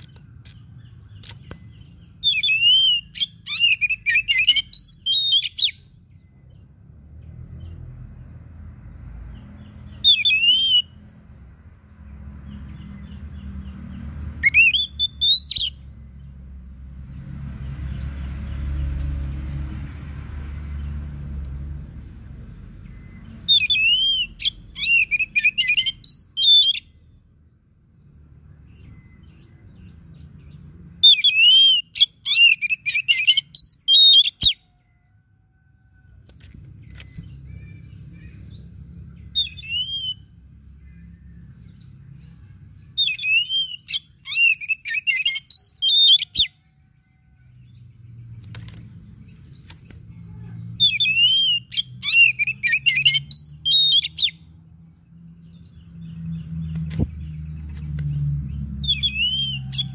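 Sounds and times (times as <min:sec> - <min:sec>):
bird singing whistled warbles: 0:00.0 - 0:06.7, 0:09.1 - 0:11.2, 0:14.4 - 0:15.9, 0:22.8 - 0:27.2, 0:28.7 - 0:35.0, 0:36.8 - 0:47.3, 0:49.3 - 0:54.5, 0:55.4 - 0:59.9.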